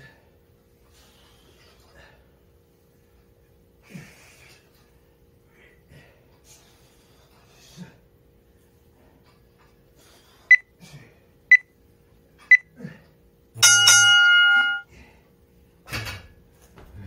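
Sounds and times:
long low timer beep: 13.6s - 14.8s
short high timer beeps: 13.6s - 14.8s.

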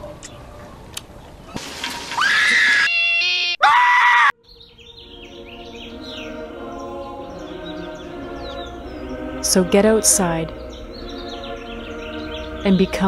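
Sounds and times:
person screaming: 3.6s - 4.3s
birds chirping: 4.4s - 13.0s
soft music: 4.8s - 13.0s.

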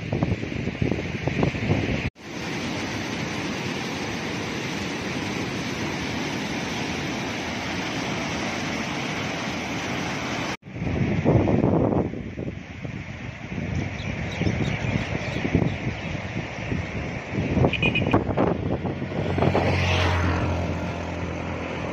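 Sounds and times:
wind buffeting microphone: 0.0s - 2.2s, 10.6s - 21.9s
white-water river rushing over rocks: 2.2s - 10.6s.

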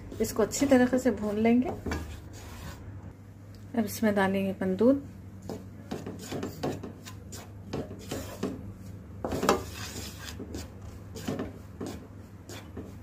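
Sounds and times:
spatula scraping metal pan: 0.5s - 2.8s, 5.9s - 8.6s, 9.2s - 13.0s.

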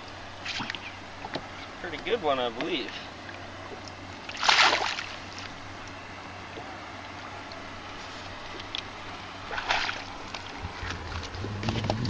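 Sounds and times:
water splashes: 0.0s - 12.0s
wind: 0.0s - 12.0s
lapping water: 9.4s - 12.0s.

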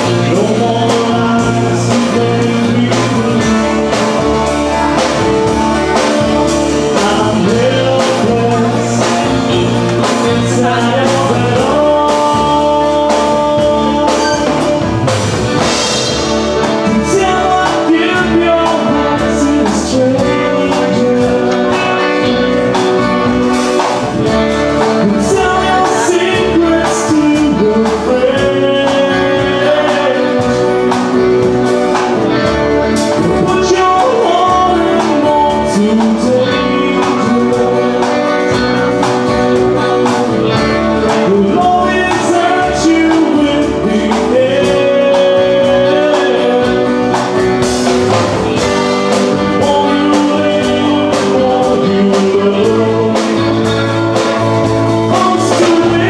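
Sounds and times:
drum kit: 0.0s - 56.0s
guitars: 0.0s - 56.0s
man singing lead: 0.0s - 56.0s.

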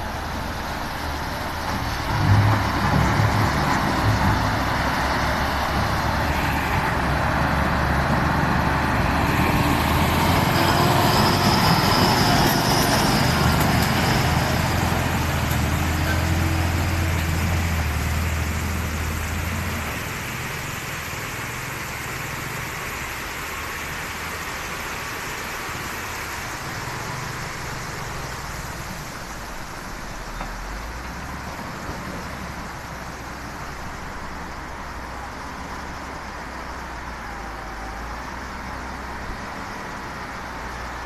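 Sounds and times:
river water rushing: 0.0s - 41.0s.

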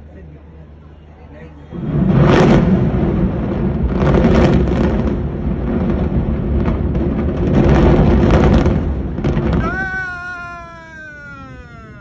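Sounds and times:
building collapse rumble: 1.7s - 12.0s
crackling explosive blasts: 1.7s - 12.0s.

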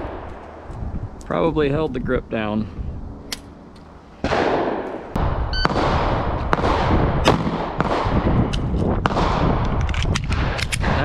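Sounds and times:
steady low rumble: 0.0s - 11.0s
pistol shots: 4.2s - 11.0s.

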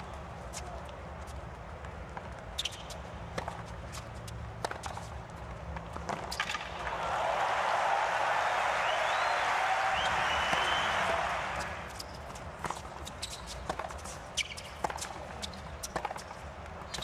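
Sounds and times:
tennis ball bouncing: 1.8s - 6.9s, 10.0s - 16.4s
crowd applauding and cheering: 6.8s - 11.9s.

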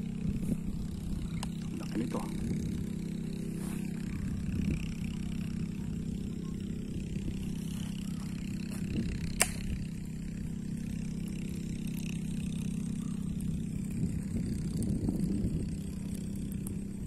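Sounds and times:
low engine drone: 0.0s - 17.0s
sharp click: 9.3s - 9.7s.

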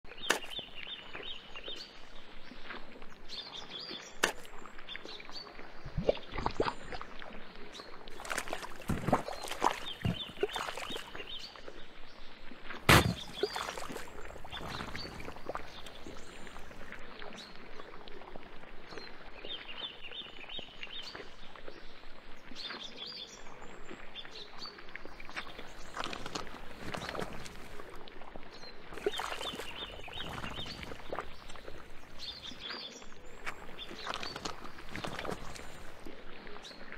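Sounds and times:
birds chirping: 0.1s - 2.7s, 7.7s - 17.9s, 22.6s - 27.9s, 28.5s - 36.9s
wet squelches of quicksand: 0.1s - 36.9s.

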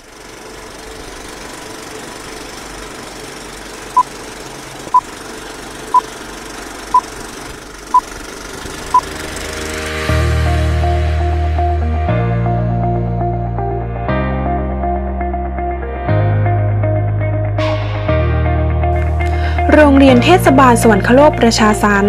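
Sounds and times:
film projector whirring clatter: 0.0s - 10.0s.

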